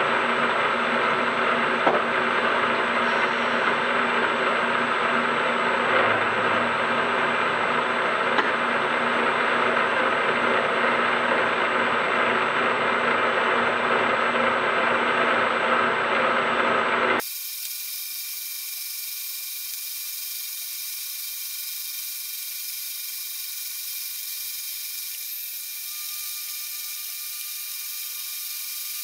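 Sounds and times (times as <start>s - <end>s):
higher-pitched whir: 17.2s - 29.0s
milling machine running: 17.2s - 29.0s.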